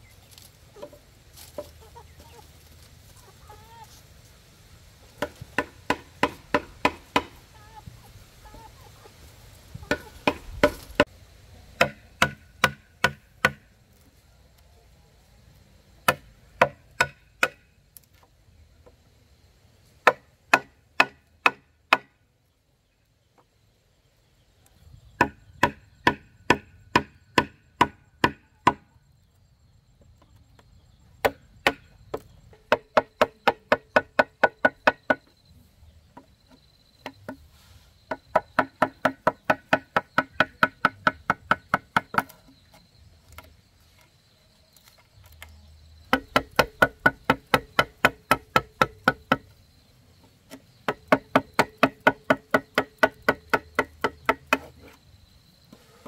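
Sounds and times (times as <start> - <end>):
chopping strikes on wood: 5.2 - 7.4, 9.9 - 11.1, 11.8 - 13.7, 16.1 - 17.7, 20.0 - 22.2, 25.2 - 28.8, 31.2 - 35.2, 38.1 - 42.4, 46.1 - 49.5, 50.5 - 54.7.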